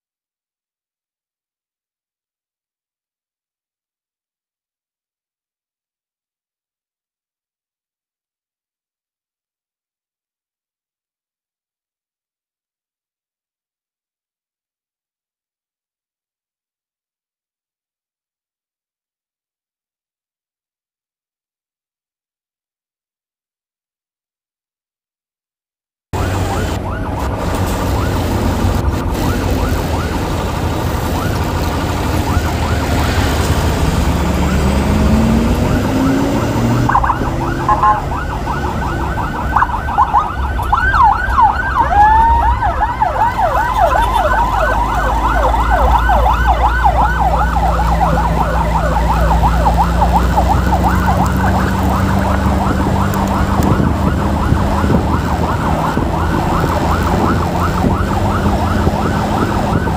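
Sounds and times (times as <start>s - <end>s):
electronic emergency siren: 26.2s - 59.9s
road and engine rumble: 26.2s - 59.9s.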